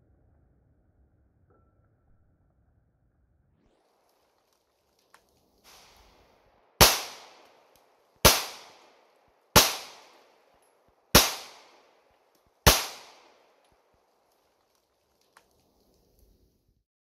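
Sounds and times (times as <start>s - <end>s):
pistol shots: 5.7s - 6.1s, 6.8s - 12.0s, 12.6s - 13.6s.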